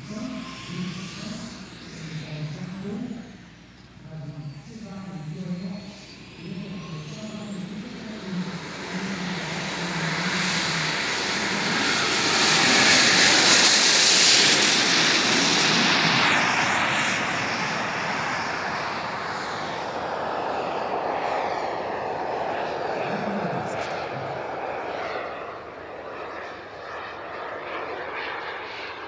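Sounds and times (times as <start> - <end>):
jet rushing roar passing: 0.0 - 29.0
jet turbine high whine: 0.0 - 29.0.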